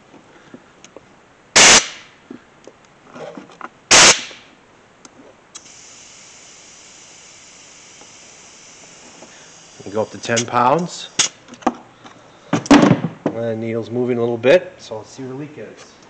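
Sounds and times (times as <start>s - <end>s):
faint air hiss: 0.0s - 16.0s
compressed air blasts: 1.6s - 2.2s, 3.9s - 4.5s, 5.5s - 11.5s.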